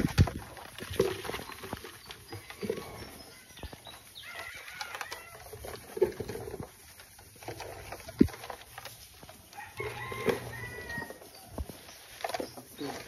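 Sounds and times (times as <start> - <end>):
leaves and cardboard rustling: 0.0 - 13.0.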